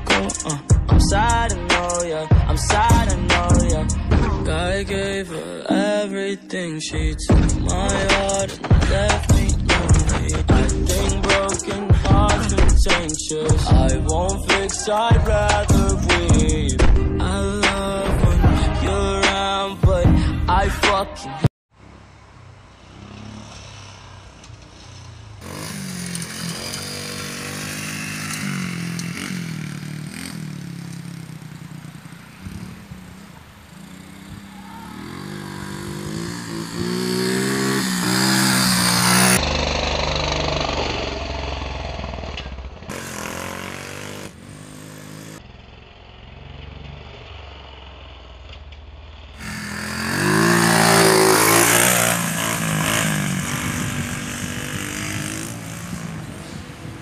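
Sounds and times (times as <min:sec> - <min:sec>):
dirt bike engine revving: 0:22.9 - 0:45.5, 0:49.4 - 0:57.0.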